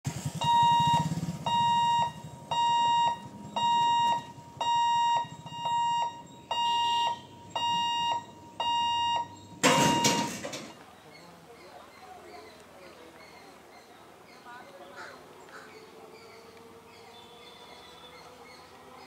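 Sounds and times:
level-crossing warning buzzer beeping: 0:00.4 - 0:10.8.

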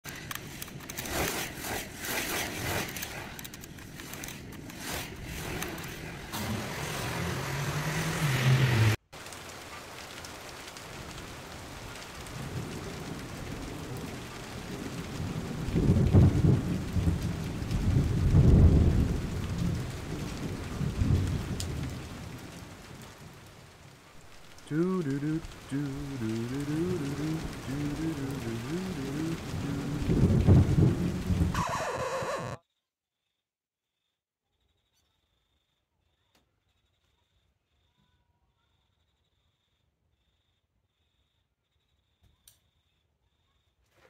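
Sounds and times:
sharp clicks and crackles: 0:00.0 - 0:06.3, 0:20.2 - 0:32.6
steady rain: 0:00.0 - 0:32.6
rising noise: 0:05.0 - 0:09.0, 0:24.4 - 0:32.6
thunder rolling: 0:10.5 - 0:23.5, 0:24.2 - 0:32.6.

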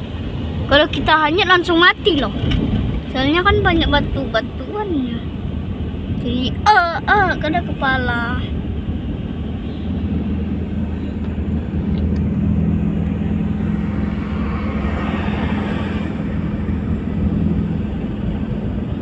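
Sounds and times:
car engine hum: 0:00.0 - 0:19.0
road noise hiss: 0:00.0 - 0:19.0.

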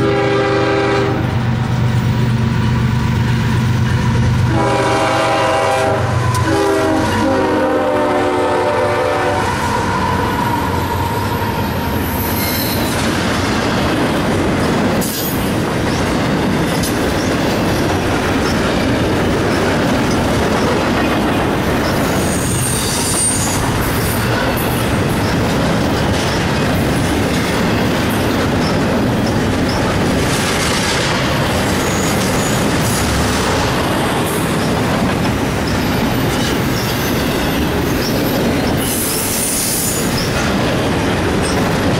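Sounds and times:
train wheels rumbling on rails: 0:00.0 - 0:41.9
high wheel squeal: 0:09.4 - 0:13.0, 0:21.8 - 0:25.4, 0:31.8 - 0:33.2, 0:35.6 - 0:40.4.

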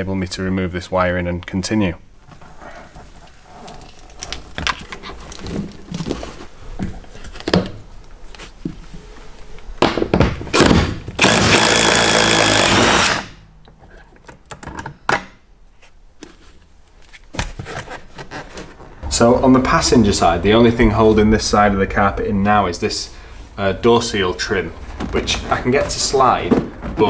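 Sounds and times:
cordless power tool running: 0:11.2 - 0:13.3
handling noises and knocks: 0:24.2 - 0:27.0.

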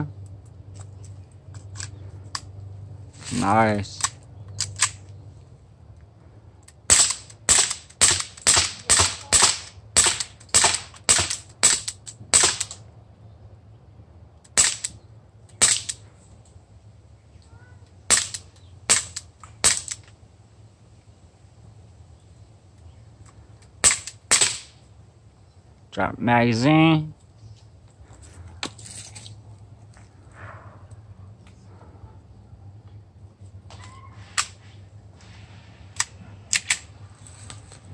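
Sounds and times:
air pistol firing sharp cracks: 0:06.8 - 0:12.8, 0:14.5 - 0:15.0, 0:15.6 - 0:16.0, 0:18.1 - 0:20.0, 0:23.8 - 0:24.8.

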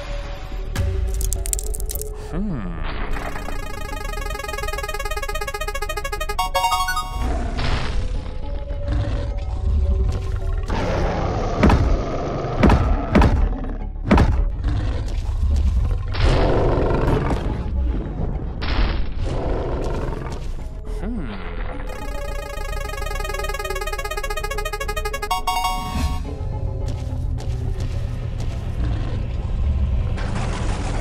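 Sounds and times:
background music: 0:00.0 - 0:15.4, 0:21.8 - 0:29.0
cartoon fight thuds and booms: 0:11.6 - 0:14.5.

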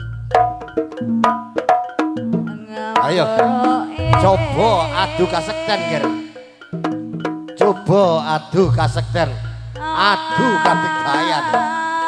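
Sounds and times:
gamelan music: 0:00.0 - 0:12.0
hand drums: 0:00.0 - 0:12.0
warbling melody line: 0:02.6 - 0:07.2, 0:07.8 - 0:11.8
deep humming stroke: 0:04.0 - 0:06.0, 0:08.6 - 0:10.2.

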